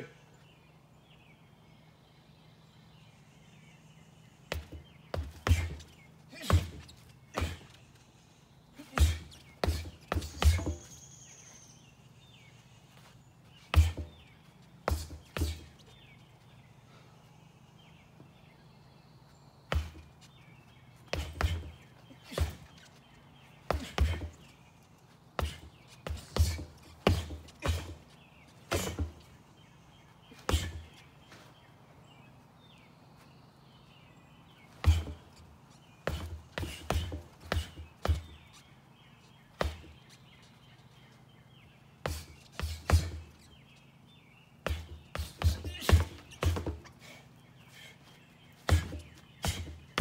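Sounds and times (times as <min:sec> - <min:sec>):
boxing gloves punching tyres: 0:04.4 - 0:08.0, 0:08.8 - 0:11.2, 0:13.5 - 0:16.5, 0:19.7 - 0:29.7, 0:30.3 - 0:31.1, 0:34.5 - 0:40.6, 0:41.5 - 0:47.7, 0:48.4 - 0:50.0.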